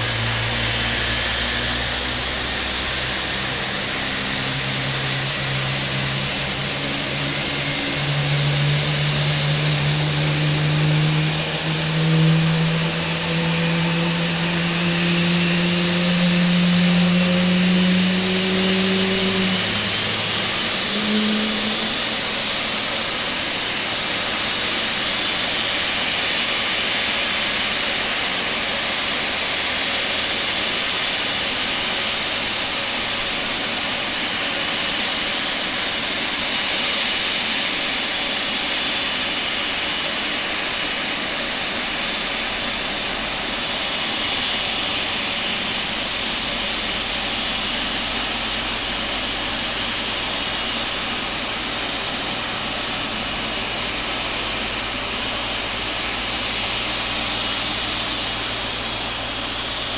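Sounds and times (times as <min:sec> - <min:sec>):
faint high whine: 0:00.0 - 0:59.9
jet engine hissing roar: 0:00.0 - 0:59.9.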